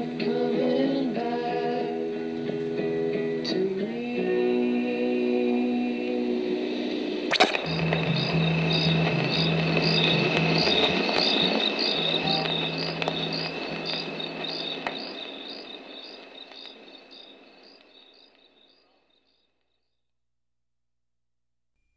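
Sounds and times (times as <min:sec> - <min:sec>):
low held drone: 0:06.7 - 0:15.9
high chirping pattern: 0:07.3 - 0:18.3.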